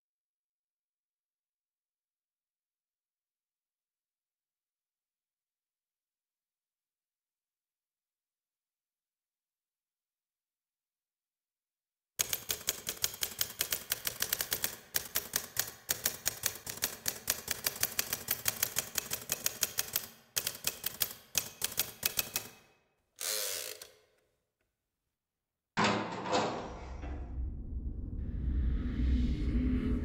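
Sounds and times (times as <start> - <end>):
typewriter keys clacking: 12.2 - 22.6
low rumble: 26.4 - 30.0.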